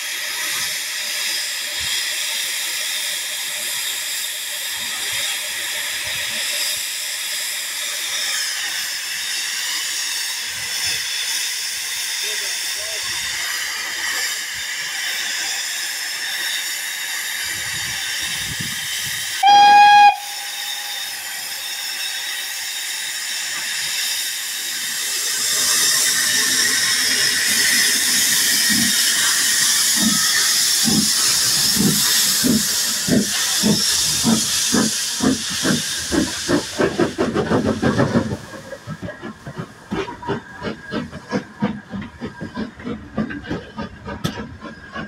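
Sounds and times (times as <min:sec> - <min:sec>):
steam hissing: 0:00.0 - 0:45.0
steam whistle blast: 0:19.4 - 0:21.7.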